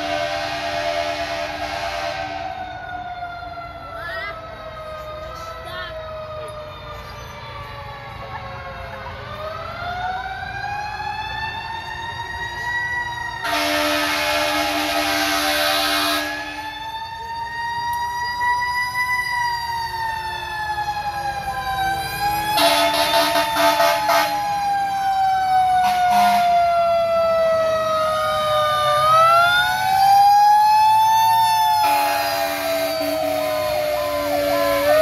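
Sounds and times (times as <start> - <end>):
fire truck air horn blasts: 0.0 - 2.7, 13.4 - 16.7, 22.5 - 24.5, 25.8 - 26.7, 31.7 - 35.0
fire engine siren wailing: 0.0 - 35.0.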